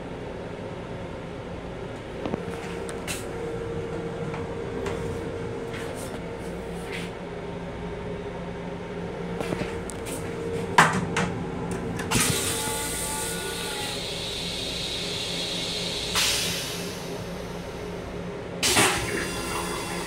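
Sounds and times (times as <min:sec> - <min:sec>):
steady hum: 0:00.0 - 0:20.0.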